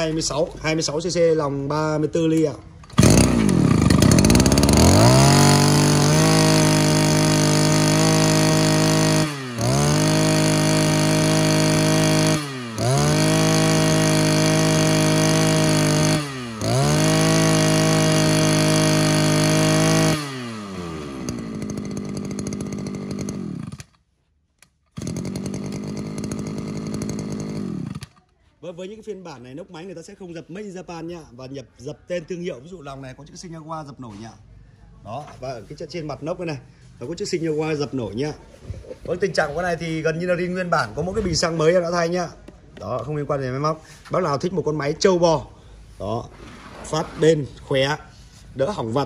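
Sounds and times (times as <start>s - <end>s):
brush cutter engine revving: 2.8s - 24.0s, 24.9s - 28.2s.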